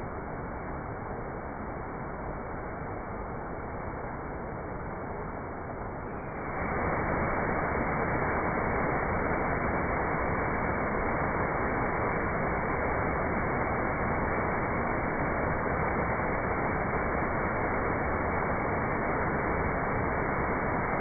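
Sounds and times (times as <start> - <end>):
small waterfall rushing into pool: 6.3 - 21.0.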